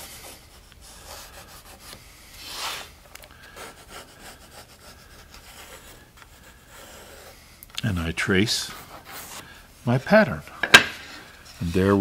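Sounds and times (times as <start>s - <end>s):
pencil scratching on wood: 0.0s - 7.4s, 8.6s - 9.5s.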